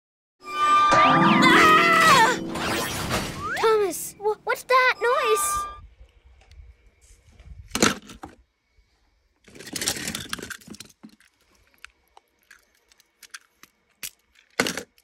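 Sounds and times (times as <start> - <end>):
toy trains clattering in a plastic tub: 9.4 - 11.5.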